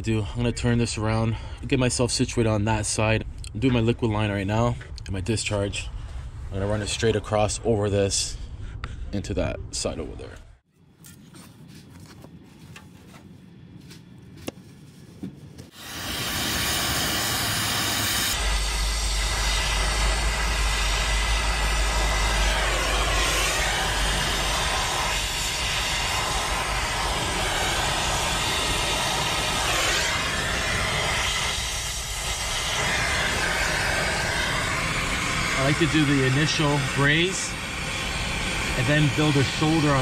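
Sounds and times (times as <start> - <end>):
low rumble: 0.0 - 10.6, 15.8 - 40.0
torch flame hissing: 15.7 - 40.0.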